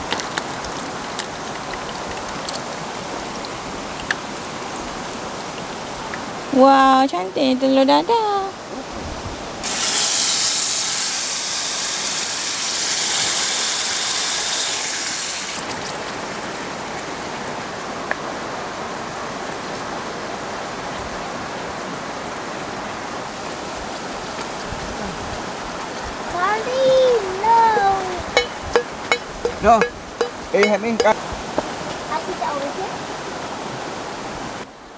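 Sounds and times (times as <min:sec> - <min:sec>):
water rushing: 0:00.0 - 0:34.9
loud even hiss: 0:09.6 - 0:15.7.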